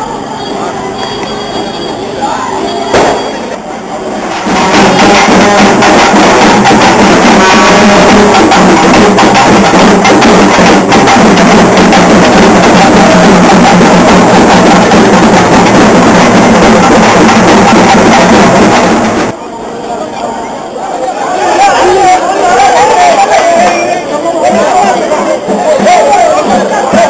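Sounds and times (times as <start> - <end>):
frame drum beating: 4.2 - 19.4
barrel drum beaten with sticks: 4.3 - 19.4.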